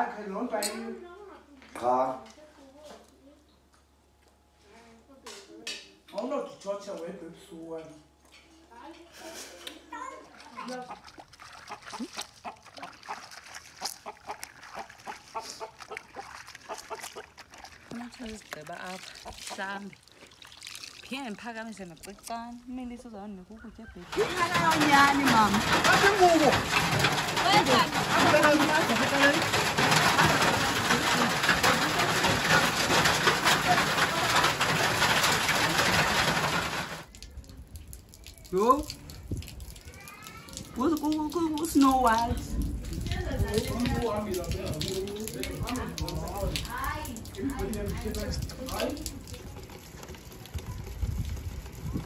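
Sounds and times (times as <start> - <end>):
wet laundry squelching in water: 9.9 - 52.0
hailstones clattering: 24.0 - 37.1, 41.1 - 52.0.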